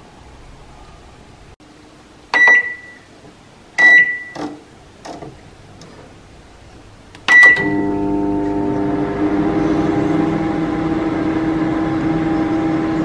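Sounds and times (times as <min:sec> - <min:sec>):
microwave control panel beeps: 0:02.4 - 0:03.1, 0:03.8 - 0:04.4, 0:07.3 - 0:08.0.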